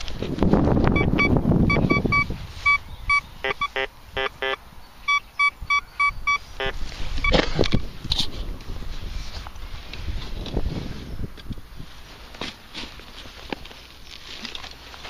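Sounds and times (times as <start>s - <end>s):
metal detector beeping: 0.9s - 7.8s
metal detector buzzy low tones: 0.9s - 7.8s.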